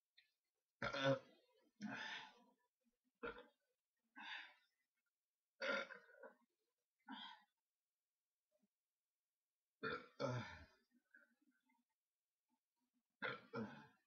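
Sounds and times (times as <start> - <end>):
man burping: 0.8 - 1.4, 3.2 - 3.6, 5.6 - 6.3, 9.8 - 10.7, 13.2 - 14.0.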